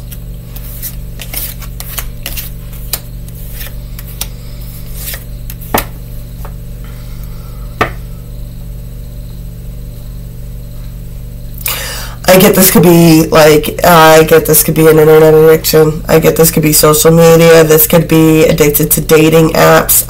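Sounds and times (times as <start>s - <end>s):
steady low hum: 0.0s - 20.0s
knocks on table: 7.8s - 8.0s.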